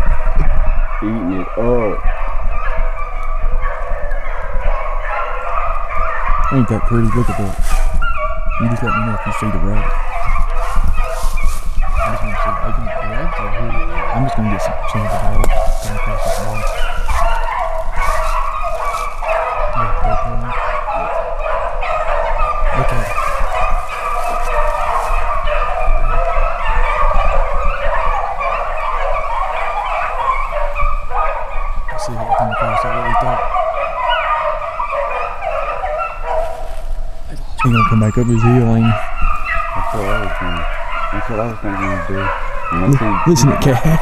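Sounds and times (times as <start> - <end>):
pack of dogs baying: 0.0 - 44.0.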